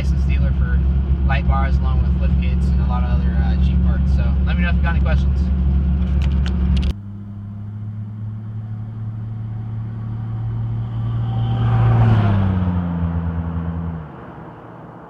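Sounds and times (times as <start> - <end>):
car driving past: 5.4 - 15.0.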